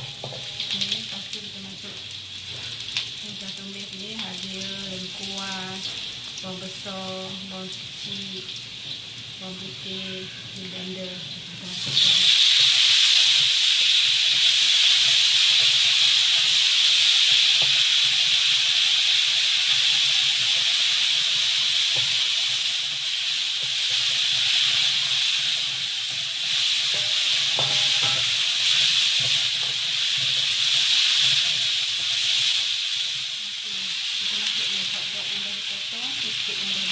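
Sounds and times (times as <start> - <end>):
spatula stirring in wok: 0.0 - 1.3, 19.8 - 33.3
hot oil sizzling: 0.0 - 36.9.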